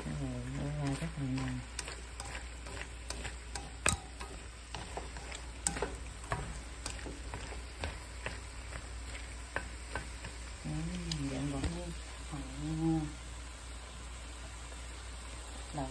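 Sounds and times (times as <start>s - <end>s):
chopsticks scraping and tapping pan: 0.0s - 11.8s
food sizzling in a pan: 0.0s - 15.9s.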